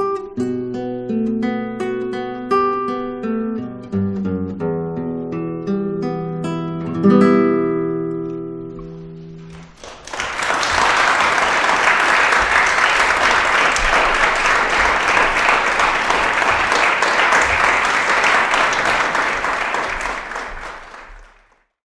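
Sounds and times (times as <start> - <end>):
classical guitar chord: 0.0 - 9.7
audience applause: 9.5 - 21.6.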